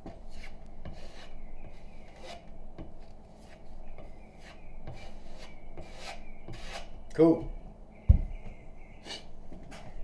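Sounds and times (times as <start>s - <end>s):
putty knife scraping drywall: 0.0s - 2.5s, 4.4s - 7.0s.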